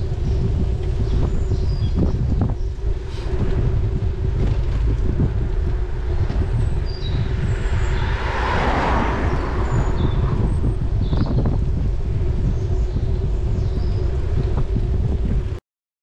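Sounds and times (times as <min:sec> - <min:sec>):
bicycle tyres on wet road: 0:00.0 - 0:15.6
wind rumble on microphone: 0:00.0 - 0:15.6
car passing on wet road: 0:07.3 - 0:10.8.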